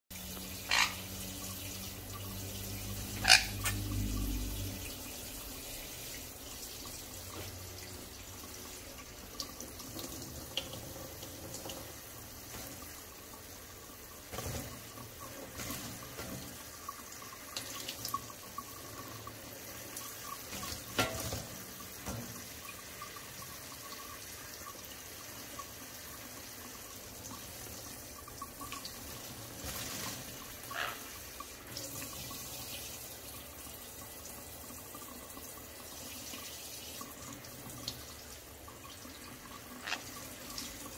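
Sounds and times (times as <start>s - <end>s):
tap running into metal sink: 20.5s - 22.8s.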